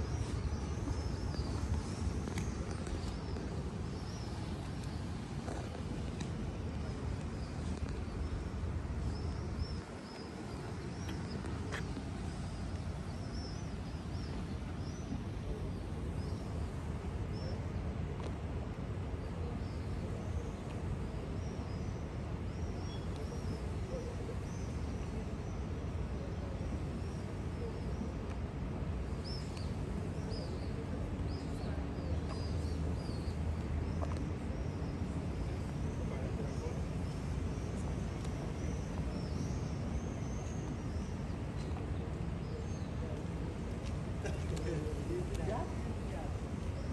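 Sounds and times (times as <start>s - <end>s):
low harbour and city rumble: 0.0s - 46.9s.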